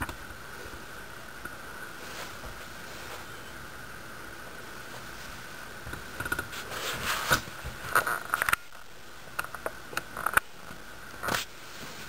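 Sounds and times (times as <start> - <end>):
sharp clicks and soft knocks: 5.8 - 6.5.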